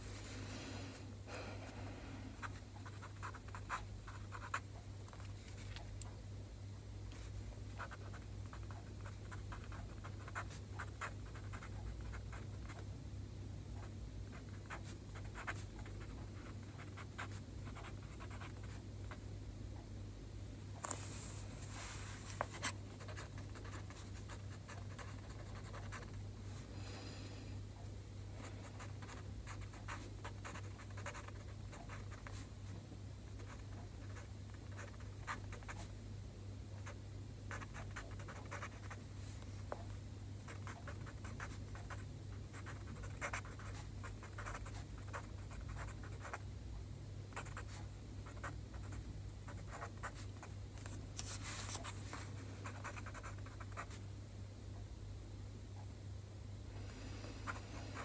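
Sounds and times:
steady low hum: 0.0s - 58.0s
pen scratching on paper: 2.4s - 4.6s, 7.8s - 12.8s, 14.3s - 18.7s, 22.4s - 26.2s, 28.7s - 32.4s, 33.4s - 35.9s, 36.8s - 39.0s, 40.5s - 46.4s, 47.3s - 52.0s, 52.6s - 54.0s.

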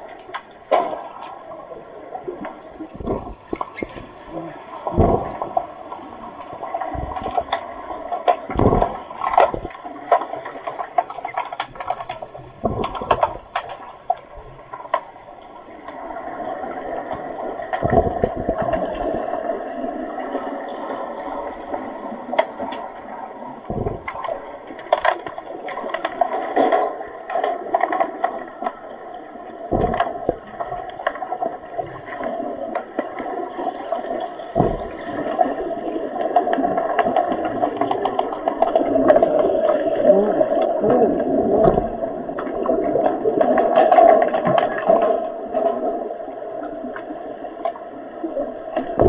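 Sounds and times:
underwater rushing water: 0.0s - 49.0s
low thumps: 4.8s - 5.6s, 23.7s - 24.4s, 29.7s - 30.8s, 34.5s - 35.3s
sharp clicks and knocks: 6.9s - 15.1s, 29.7s - 32.1s, 34.5s - 35.4s.

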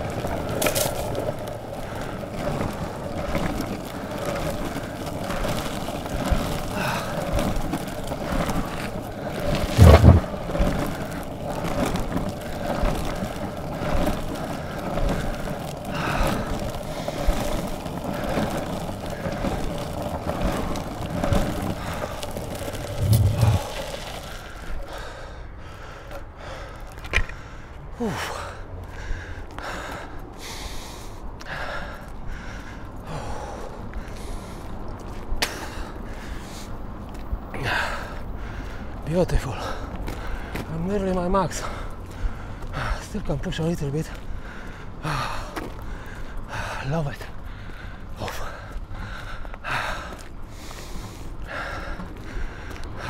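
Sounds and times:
longboard wheels rumbling on gravel: 0.0s - 53.0s
footsteps: 9.5s - 10.4s, 22.1s - 24.4s
dull thump: 9.7s - 10.3s
heavy panting breaths: 44.3s - 53.0s.

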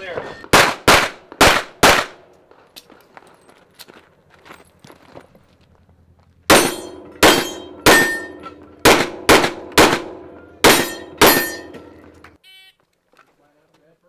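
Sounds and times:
handgun shots: 6.5s - 11.7s.

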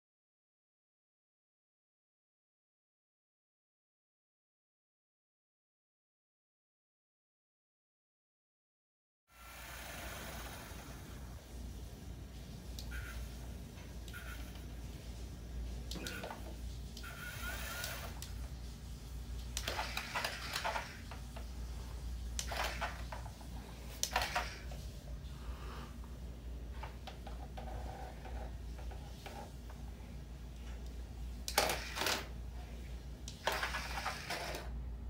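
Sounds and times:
small electric motors whirring: 16.0s - 18.4s, 19.5s - 21.4s, 22.4s - 23.3s, 24.0s - 24.8s, 31.4s - 32.3s, 33.3s - 34.7s.

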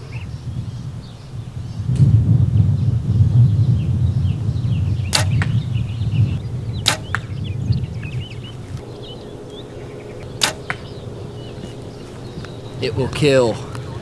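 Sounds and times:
bow release snap: 5.1s - 5.6s, 6.8s - 7.3s, 10.4s - 10.9s.

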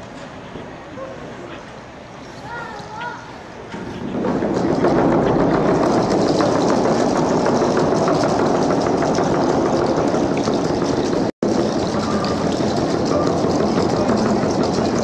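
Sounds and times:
group frame drumming: 4.0s - 15.0s.

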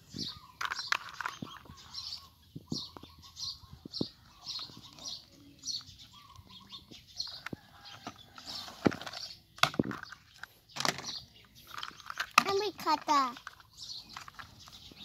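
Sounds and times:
plastic toy clicks and knocks: 0.6s - 1.7s, 8.8s - 14.8s.

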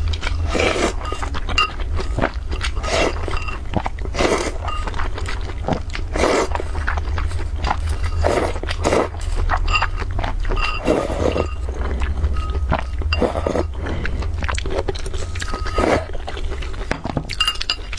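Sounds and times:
person slurping noodles: 0.3s - 1.3s, 2.0s - 3.3s, 4.1s - 4.6s, 6.0s - 6.9s, 7.5s - 9.5s, 10.8s - 14.4s.

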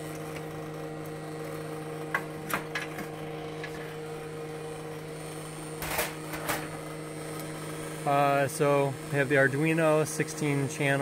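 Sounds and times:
electrical hum: 0.0s - 11.0s.

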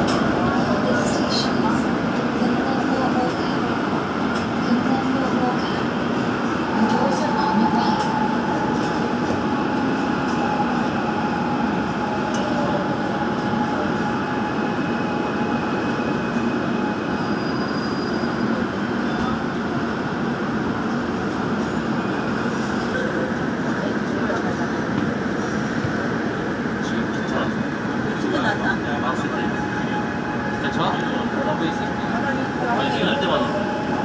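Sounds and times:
subway train running: 0.0s - 34.0s.

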